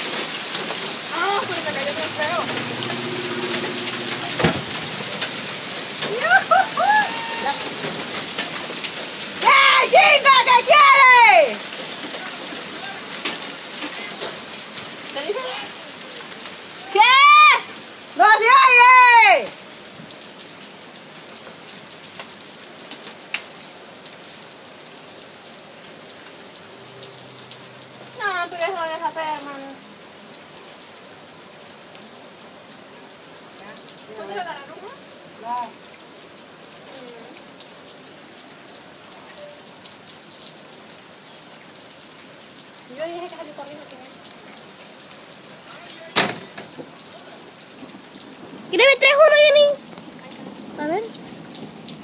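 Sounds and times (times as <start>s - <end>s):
hail hissing and ticking: 0.0s - 17.2s, 19.8s - 29.8s
short high calls: 1.3s - 7.8s.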